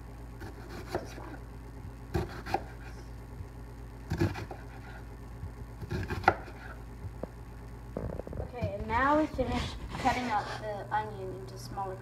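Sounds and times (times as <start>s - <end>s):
steady low hum: 0.0s - 12.0s
knife slicing onion on cutting board: 0.4s - 1.4s, 2.1s - 3.0s, 4.1s - 5.1s, 5.8s - 6.8s.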